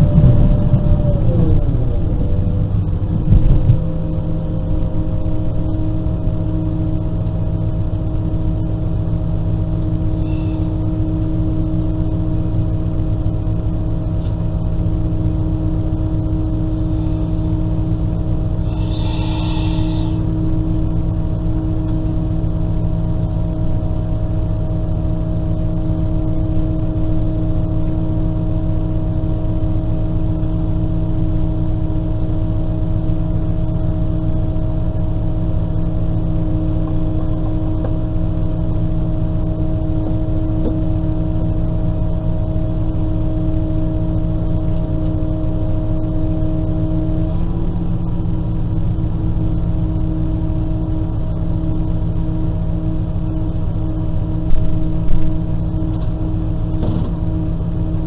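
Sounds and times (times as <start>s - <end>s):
diesel railcar idling hum: 0.0s - 58.0s.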